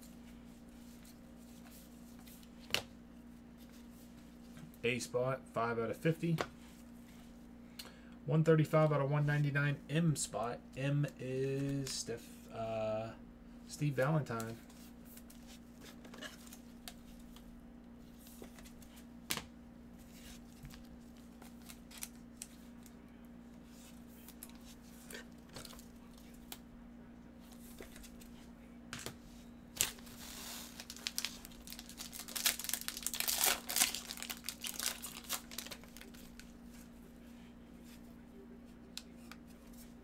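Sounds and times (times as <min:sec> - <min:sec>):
steady low hum: 0:00.0 - 0:40.0
cards and wrapper rustling: 0:29.8 - 0:36.5
foil crinkling and tearing: 0:29.8 - 0:36.5.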